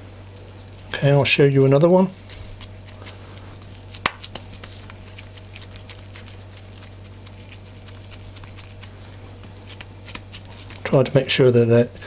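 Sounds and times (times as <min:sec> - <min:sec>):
hands patting minced meat: 0:02.1 - 0:11.2.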